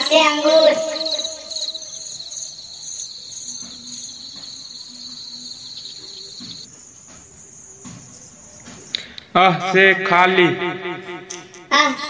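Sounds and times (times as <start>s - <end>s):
crickets chirping: 0.0s - 9.6s.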